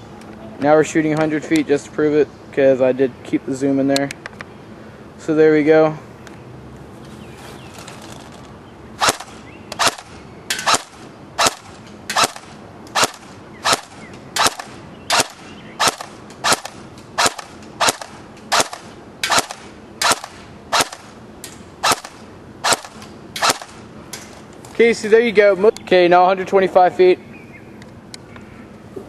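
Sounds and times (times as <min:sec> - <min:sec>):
airsoft gun single shots: 0:09.0 - 0:21.1, 0:21.8 - 0:23.8.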